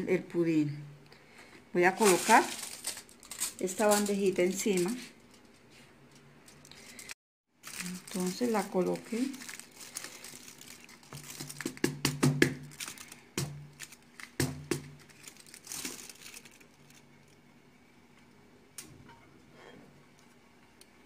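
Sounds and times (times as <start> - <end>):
aluminium foil crinkling: 1.8 - 17.4.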